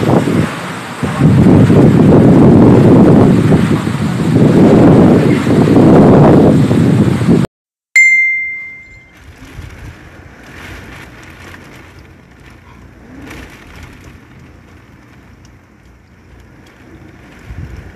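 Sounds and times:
wind and rain rushing: 0:00.0 - 0:07.5, 0:09.0 - 0:17.9
high ringing tone: 0:08.0 - 0:09.2.

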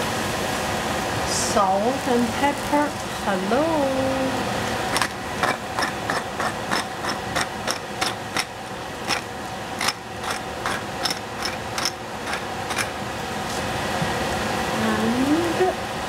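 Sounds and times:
steady hiss: 0:00.0 - 0:16.0
kitchen utensil clicking: 0:09.8 - 0:12.9.

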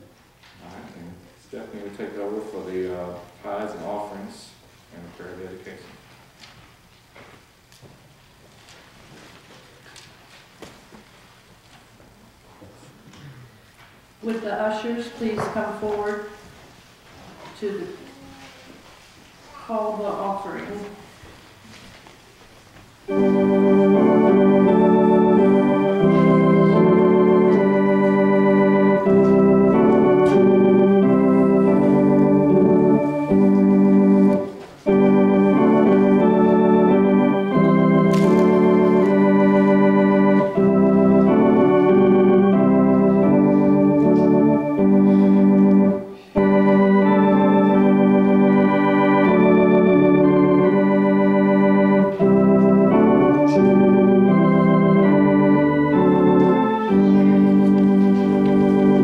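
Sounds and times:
organ playing sustained chords: 0:23.0 - 0:59.0.

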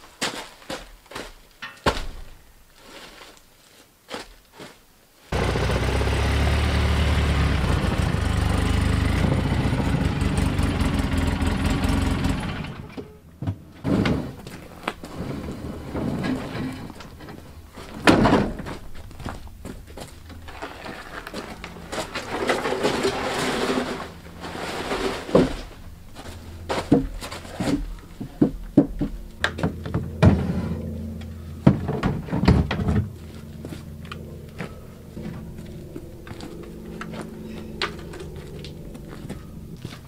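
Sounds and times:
rustling scrape of logs: 0:02.8 - 0:03.9, 0:13.8 - 0:19.2, 0:19.8 - 0:28.2
wooden thuds and knocks: 0:26.7 - 0:30.5, 0:31.6 - 0:33.2.

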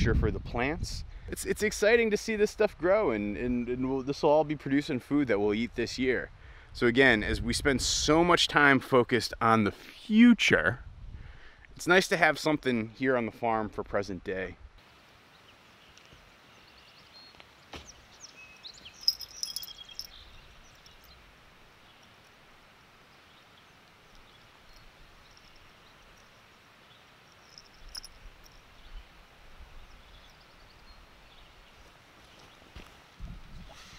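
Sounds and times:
high bird chirps: 0:16.7 - 0:22.1.

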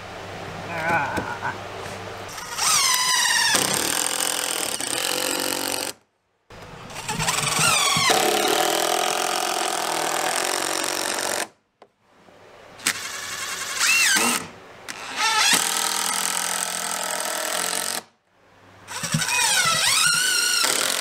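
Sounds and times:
cordless drill driving screws: 0:02.3 - 0:06.0, 0:12.8 - 0:18.1, 0:18.9 - 0:21.0.

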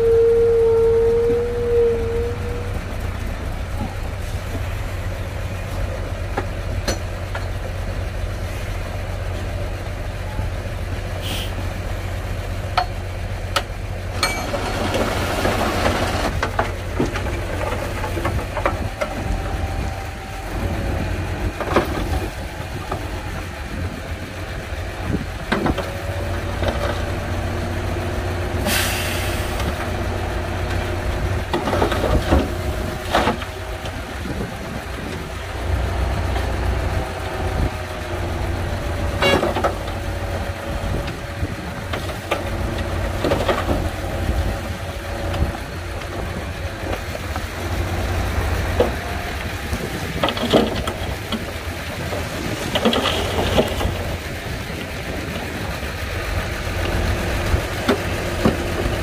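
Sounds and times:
heavy diesel machinery engine drone: 0:00.0 - 0:59.0
clanks and knocks: 0:06.3 - 0:07.6, 0:12.7 - 0:19.6, 0:49.8 - 0:54.0
short hiss of air: 0:11.2 - 0:11.6, 0:28.6 - 0:29.6.

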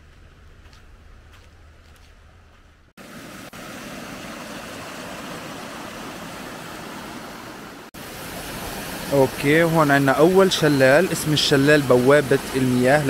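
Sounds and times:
waterfall rushing: 0:03.0 - 0:13.0.

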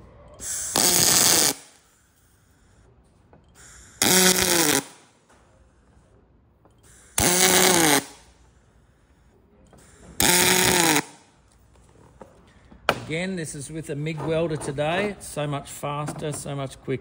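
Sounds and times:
welding arc buzzing: 0:00.4 - 0:02.0, 0:03.6 - 0:05.2, 0:06.9 - 0:08.4, 0:10.2 - 0:11.4.

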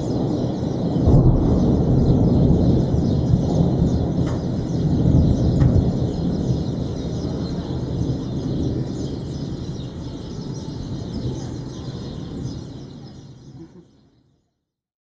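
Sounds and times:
thunder rumbling: 0:00.0 - 0:13.8
faint bird chirps: 0:03.0 - 0:14.6.

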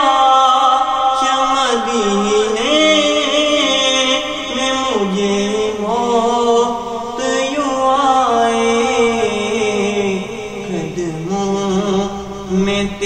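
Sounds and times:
man singing: 0:00.0 - 0:13.0.

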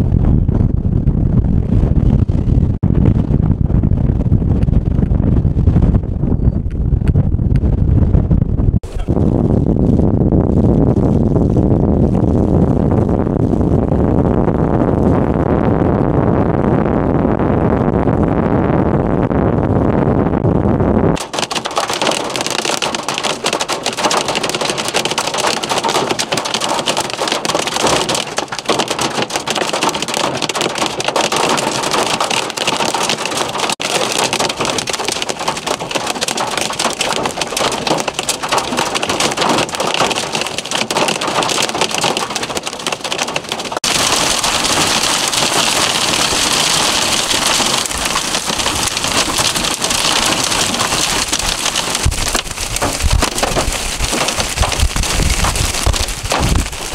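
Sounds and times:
wind rumbling on microphone: 0:00.0 - 0:56.9
hail and rain striking vehicle: 0:21.2 - 0:56.9.

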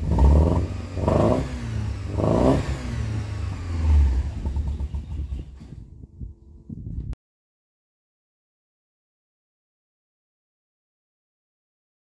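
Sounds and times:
car engine rumbling and revving: 0:00.0 - 0:07.1.

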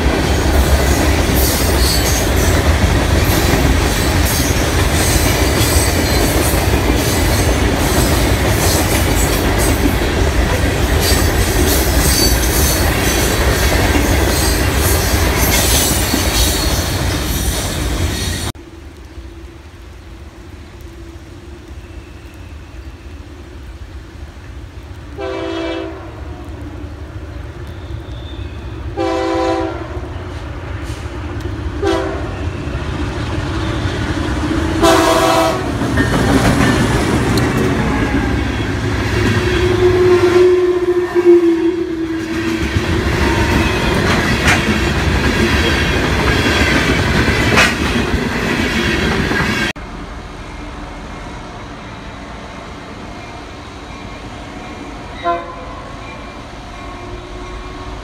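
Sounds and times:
wheels clattering on rails: 0:00.0 - 0:18.5, 0:33.6 - 0:39.7, 0:42.2 - 0:49.7
train engine rumble: 0:00.0 - 0:58.0
train air horn blasts: 0:25.2 - 0:26.3, 0:28.9 - 0:31.1, 0:31.8 - 0:32.7, 0:34.8 - 0:35.8, 0:39.4 - 0:42.4, 0:55.2 - 0:56.0.

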